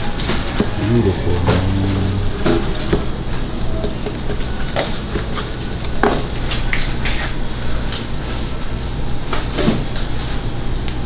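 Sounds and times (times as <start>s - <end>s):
low hum: 0.7s - 2.8s.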